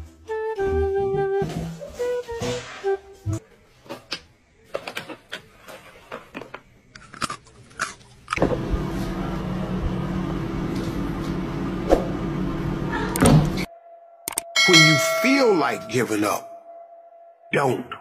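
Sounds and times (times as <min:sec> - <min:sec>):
loud droning hum: 0:08.4 - 0:13.7.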